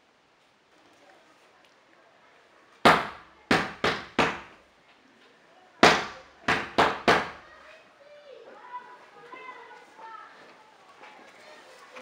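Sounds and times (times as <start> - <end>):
sharp knocks: 2.8 - 4.6, 5.8 - 7.4.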